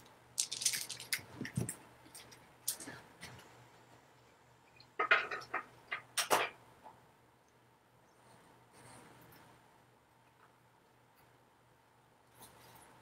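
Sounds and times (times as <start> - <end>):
beaded necklace clicking: 0.4 - 1.2
person moving about: 0.4 - 3.6.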